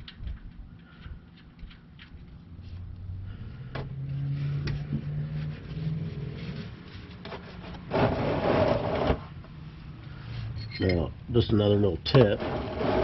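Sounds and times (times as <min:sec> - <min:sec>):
low steady hum: 0:00.0 - 0:13.0
plastic pan scraping across floor: 0:04.2 - 0:09.3, 0:12.2 - 0:13.0.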